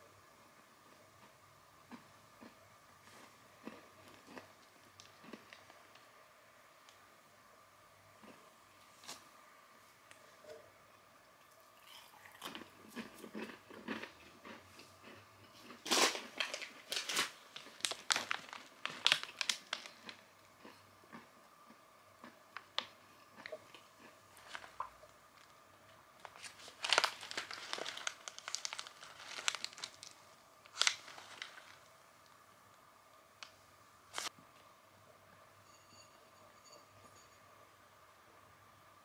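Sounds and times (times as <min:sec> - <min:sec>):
plastic snack packets crinkling: 0:15.6 - 0:20.7, 0:22.6 - 0:25.5, 0:26.2 - 0:31.9.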